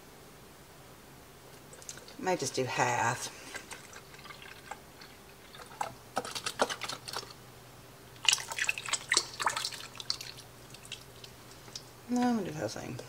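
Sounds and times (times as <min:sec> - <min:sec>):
milk pouring into a pot: 0:03.4 - 0:07.4, 0:08.2 - 0:11.9.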